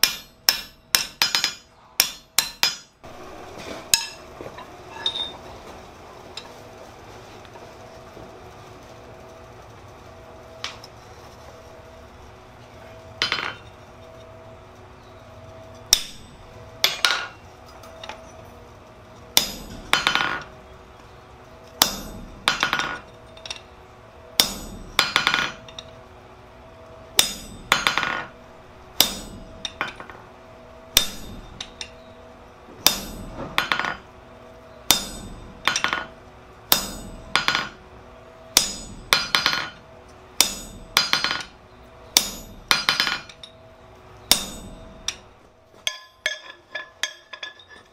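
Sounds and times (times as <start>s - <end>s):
hammer striking chisel on steel: 0.0s - 2.9s, 3.9s - 4.2s, 15.9s - 17.4s, 19.4s - 20.5s, 21.8s - 23.7s, 24.4s - 25.9s, 27.2s - 28.3s, 29.0s - 30.2s, 31.0s - 32.0s, 32.8s - 34.0s, 34.9s - 37.8s, 38.6s - 39.8s, 40.4s - 43.6s, 44.3s - 47.9s
rattle of hammer rebounds: 13.2s - 13.7s, 38.6s - 39.8s, 42.2s - 43.4s.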